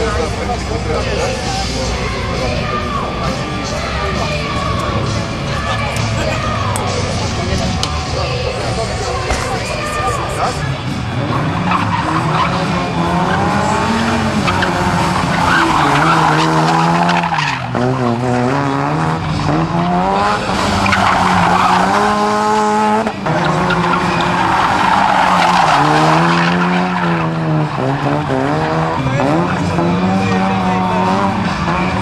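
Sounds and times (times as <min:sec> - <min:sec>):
rally car engine revving: 0:00.0 - 0:32.0
tyres squealing: 0:08.2 - 0:18.2, 0:19.4 - 0:29.8.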